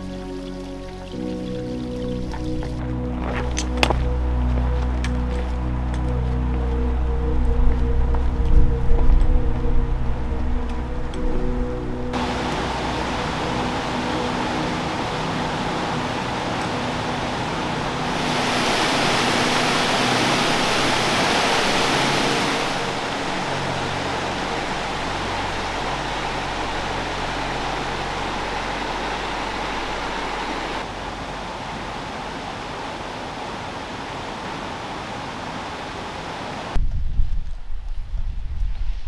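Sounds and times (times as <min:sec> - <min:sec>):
river water rushing: 0:11.8 - 0:36.8.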